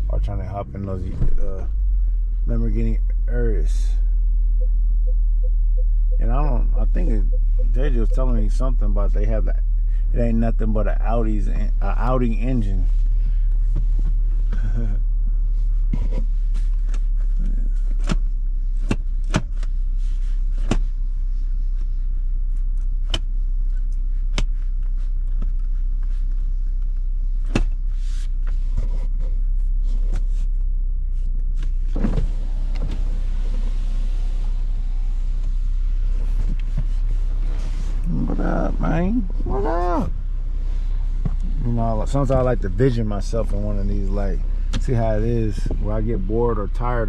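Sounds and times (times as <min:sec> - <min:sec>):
car engine idling: 0:00.0 - 0:47.0
power window motor: 0:31.7 - 0:38.0.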